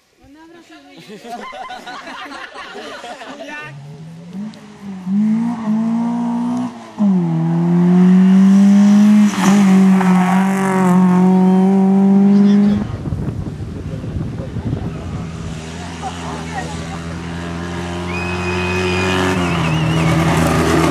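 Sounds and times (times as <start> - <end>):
car engine revving hard: 4.3 - 13.1, 14.8 - 20.9.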